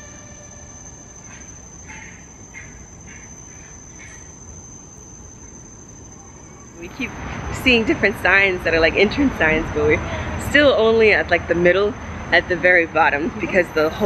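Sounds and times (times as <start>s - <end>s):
insect drone: 0.0s - 14.0s
bird calling: 0.7s - 7.4s.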